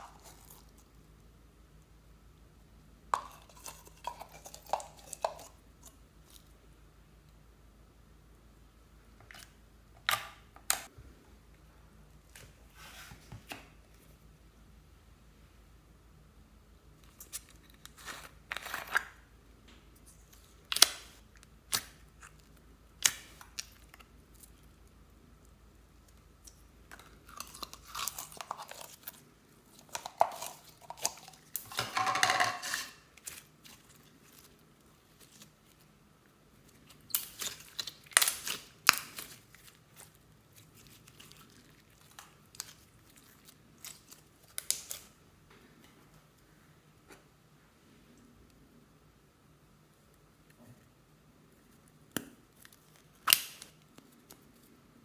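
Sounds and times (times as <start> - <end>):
slime squelching and crackling: 0.0 - 1.0, 26.0 - 31.8, 32.6 - 45.2.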